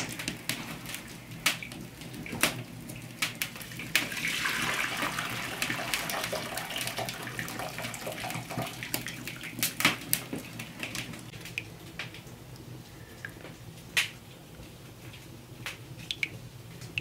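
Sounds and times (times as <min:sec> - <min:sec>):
water pouring and splashing: 0:00.0 - 0:12.4
wood fire popping and crackling: 0:00.0 - 0:17.0.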